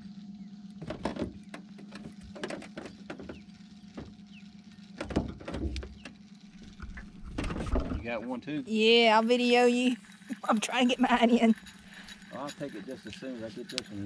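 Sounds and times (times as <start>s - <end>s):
faint steady hum: 0.0s - 14.0s
fishing reel clicking: 9.2s - 14.0s.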